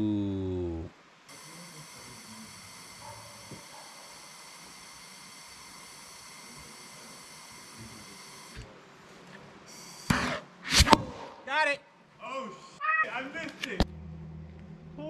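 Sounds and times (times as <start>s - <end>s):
gas hissing from canister: 1.3s - 8.7s, 9.7s - 11.0s.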